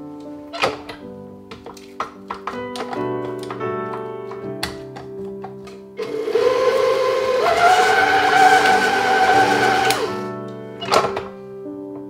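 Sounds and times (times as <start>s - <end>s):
stand mixer motor whining: 6.0s - 10.3s.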